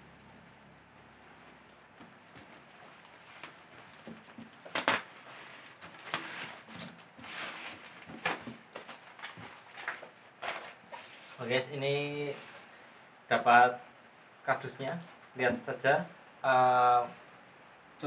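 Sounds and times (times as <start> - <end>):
cardboard box scraping and rustling: 5.2 - 11.4.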